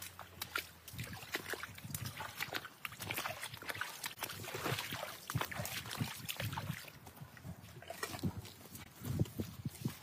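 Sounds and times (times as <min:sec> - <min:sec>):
elephants crunching and rustling: 0:07.0 - 0:10.0.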